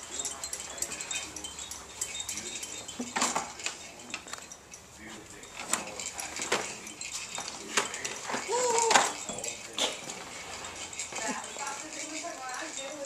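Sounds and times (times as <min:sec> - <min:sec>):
plastic toys clicking and rattling: 0:00.0 - 0:13.0
baby walker rolling: 0:05.1 - 0:13.0.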